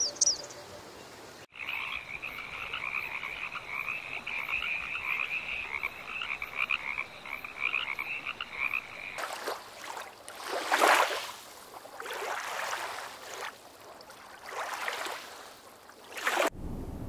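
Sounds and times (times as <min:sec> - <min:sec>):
water washing and splashing: 0:09.2 - 0:16.6
low steady rumble: 0:16.5 - 0:17.0.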